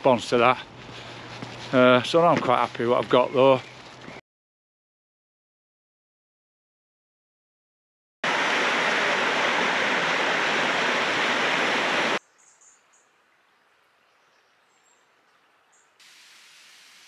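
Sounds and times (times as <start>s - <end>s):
loud rushing noise: 8.3s - 12.2s.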